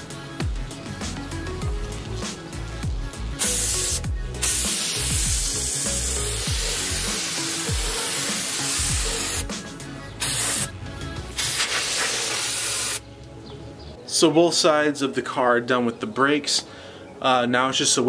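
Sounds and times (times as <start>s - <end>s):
aerosol spray hissing: 3.4s - 9.6s, 10.2s - 10.7s, 11.4s - 13.0s.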